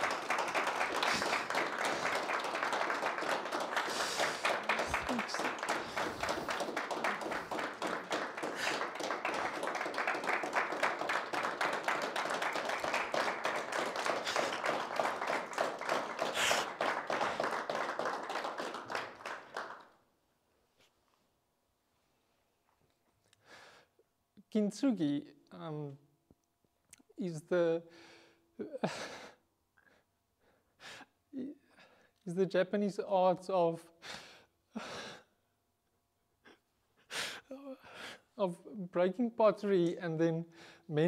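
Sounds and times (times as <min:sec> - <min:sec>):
audience applauding: 0:00.0 - 0:20.0.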